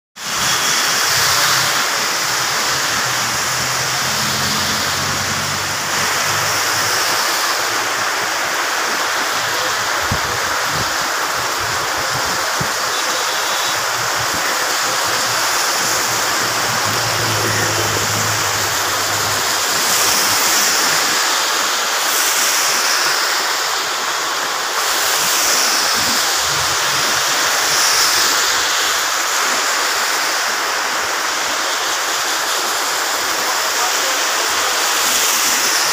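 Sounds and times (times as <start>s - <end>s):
heavy rain pouring: 0.2s - 35.9s
tyres hissing through water: 0.2s - 35.9s
passing vehicle engine hum: 0.3s - 7.0s, 13.8s - 20.8s.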